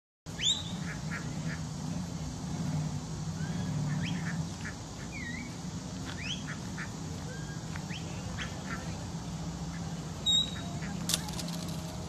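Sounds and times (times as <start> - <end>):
ducks quacking: 8.3 - 9.0.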